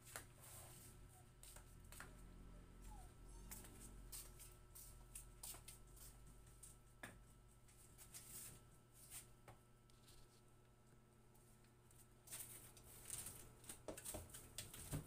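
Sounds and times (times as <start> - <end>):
broom sweeping floor: 0.0 - 2.2, 3.4 - 6.8, 7.6 - 9.4.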